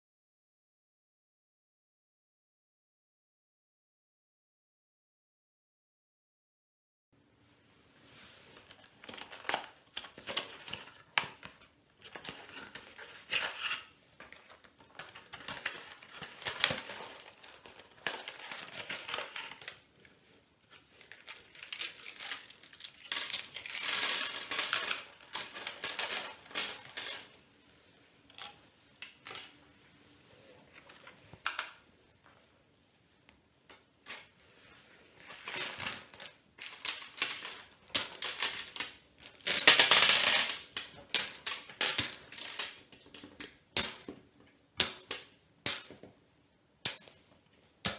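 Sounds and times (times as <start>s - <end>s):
plastic tiles clattering on table: 21.1s - 27.4s, 35.2s - 44.1s.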